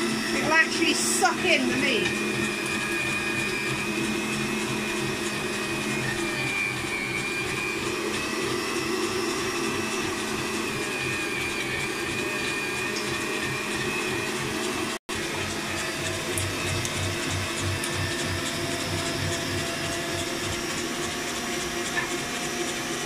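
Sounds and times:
mixer motor humming and whining: 0:00.0 - 0:23.0.

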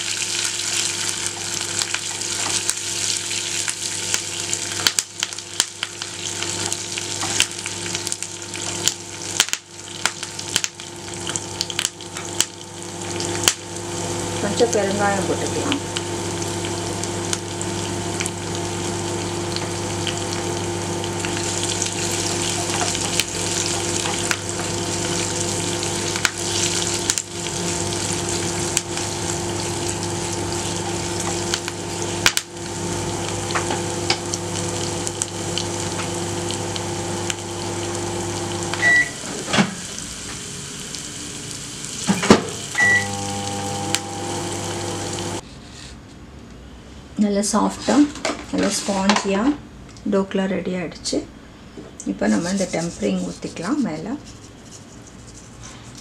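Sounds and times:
spices sizzling in hot oil: 0:00.0 - 0:45.4
electrical hum: 0:00.0 - 0:45.5
wooden spatula stirring: 0:52.2 - 0:56.0.

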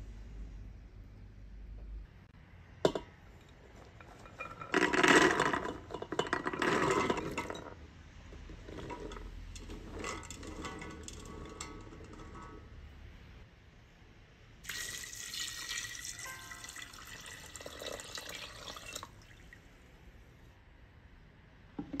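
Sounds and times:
rustling and clinking in pot: 0:02.8 - 0:13.0, 0:15.6 - 0:19.1
chickpeas clattering into metal pot: 0:04.0 - 0:07.8, 0:08.4 - 0:12.7.

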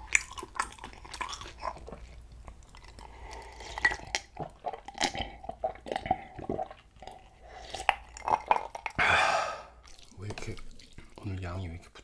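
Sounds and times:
person gulping water: 0:02.6 - 0:11.2
glass and liquid sounds: 0:02.7 - 0:09.0.

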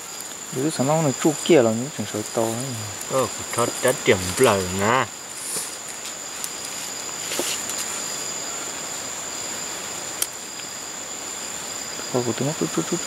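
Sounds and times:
crickets trilling: 0:00.0 - 0:13.0
rustling in leaf litter: 0:03.3 - 0:08.4.

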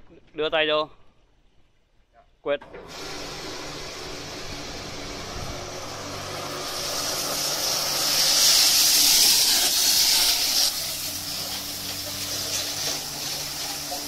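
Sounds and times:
water spray nozzles hissing: 0:02.8 - 0:14.0.

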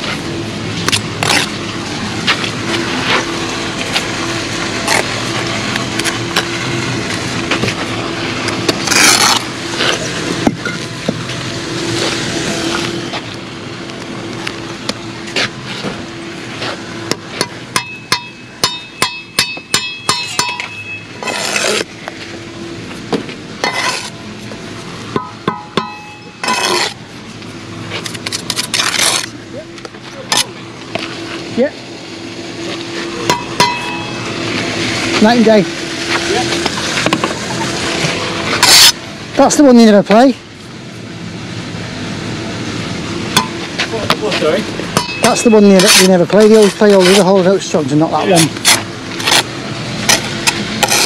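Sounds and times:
trowel scraping mortar: 0:00.8 - 0:01.6, 0:07.5 - 0:10.1, 0:21.2 - 0:21.9, 0:23.6 - 0:24.2, 0:26.3 - 0:27.0, 0:27.9 - 0:29.4, 0:36.2 - 0:39.0, 0:45.2 - 0:51.0.

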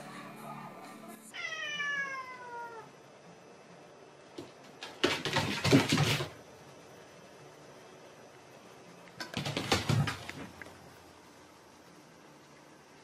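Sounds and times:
cat meowing: 0:01.3 - 0:02.9.

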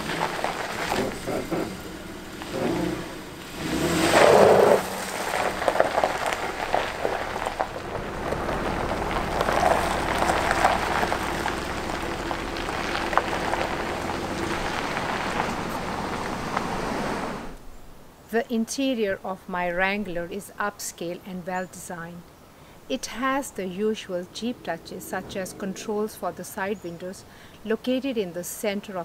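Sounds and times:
car engine running: 0:00.0 - 0:17.6
tyres crunching on gravel: 0:00.0 - 0:17.6.

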